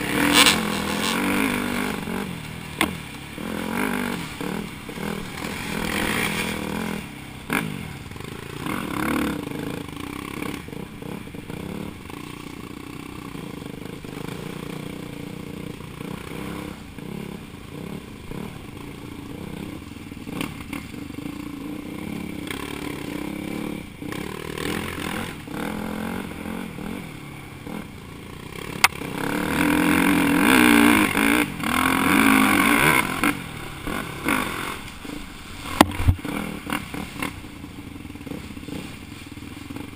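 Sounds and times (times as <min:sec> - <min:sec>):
dirt bike engine revving: 0:00.0 - 0:39.9
bike clattering and scraping: 0:02.7 - 0:08.9.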